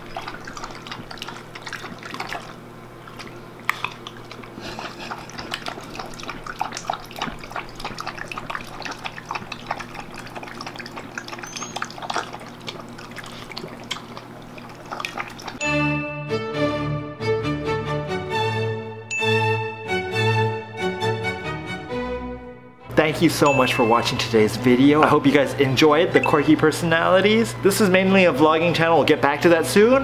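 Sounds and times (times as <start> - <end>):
dog lapping water: 0.0 - 15.6.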